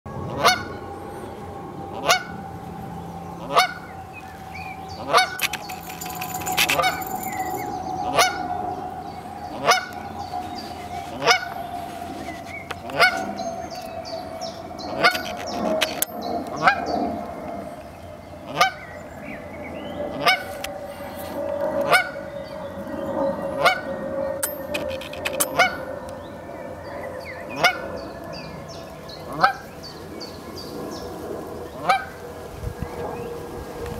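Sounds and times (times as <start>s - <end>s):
goose honking: 3.4s - 3.9s.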